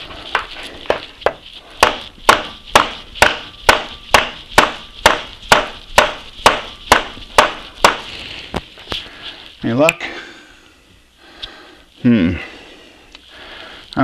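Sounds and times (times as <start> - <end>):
rubber mallet striking metal: 1.8 - 8.1.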